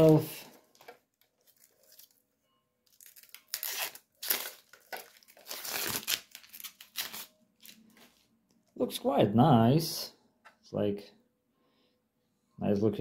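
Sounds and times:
plastic wrapping crinkling: 0.0 - 8.2.

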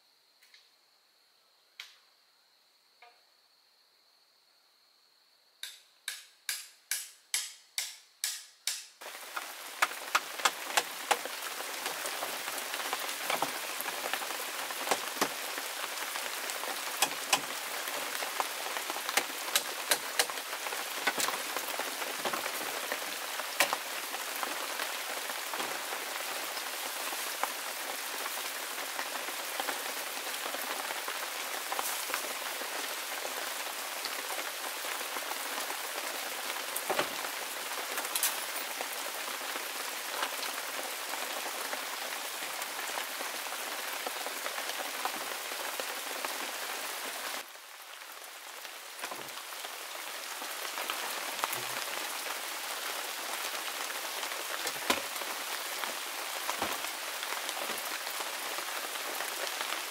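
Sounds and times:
steady rain hiss: 0.0 - 59.9
raindrops striking close by: 5.6 - 59.9.

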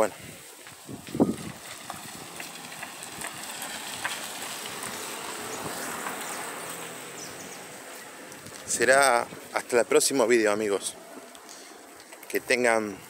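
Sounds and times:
outdoor street noise: 0.0 - 13.0
faint clicks: 11.2 - 12.4.

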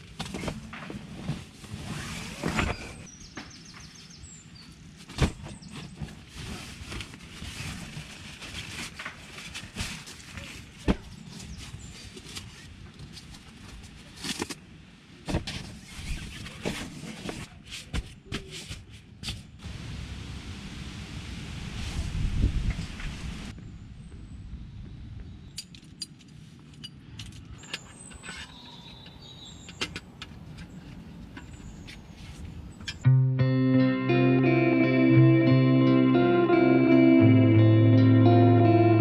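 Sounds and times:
rustling on nylon tent floor: 0.0 - 3.1, 3.7 - 19.7.

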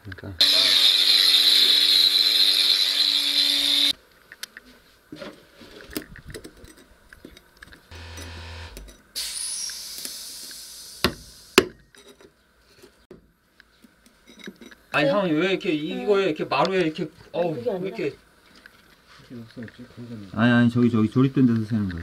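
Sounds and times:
power tool running: 0.4 - 4.0, 7.9 - 9.5
steady hiss: 9.1 - 11.7.

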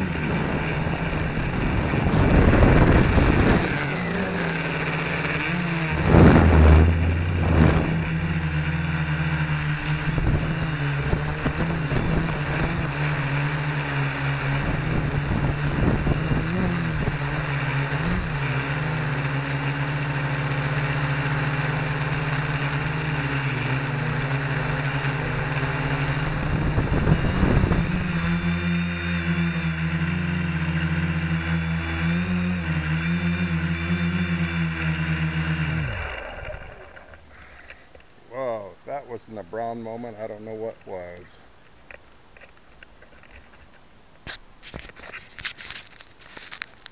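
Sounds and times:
drone motors and propellers humming: 0.0 - 38.0
low buffeting thumps: 5.7 - 12.2.

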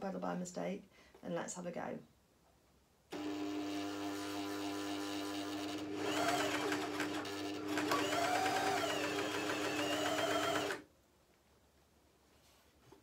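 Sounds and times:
sewing machine humming: 3.2 - 10.9.

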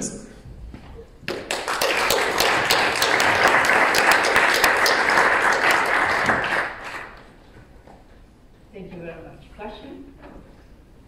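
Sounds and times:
audience applauding: 1.3 - 7.4.

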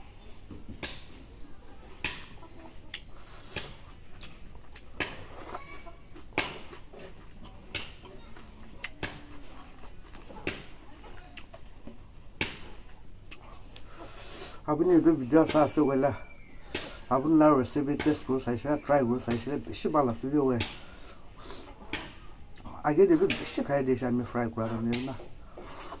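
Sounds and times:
lip smacks: 2.0 - 11.7, 12.4 - 14.6
man chewing wetly: 2.0 - 14.6, 20.8 - 22.8, 25.3 - 26.0.

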